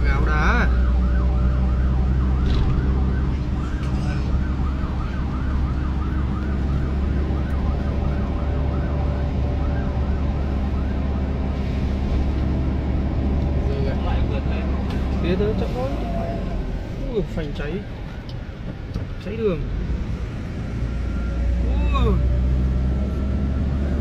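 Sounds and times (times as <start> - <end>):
police siren wailing: 0.0 - 17.0
car engine and road noise: 0.0 - 24.0.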